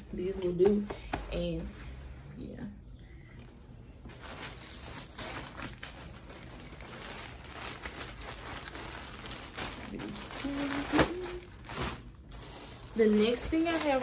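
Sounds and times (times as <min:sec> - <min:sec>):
fabric rustling: 0:04.0 - 0:14.0.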